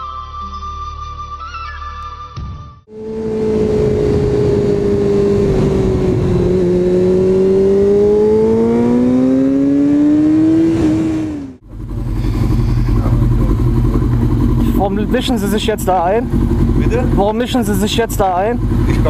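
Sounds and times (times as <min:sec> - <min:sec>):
motorcycle engine accelerating: 0:02.8 - 0:19.0
wind rush: 0:03.0 - 0:08.6
engine idling: 0:11.6 - 0:19.0.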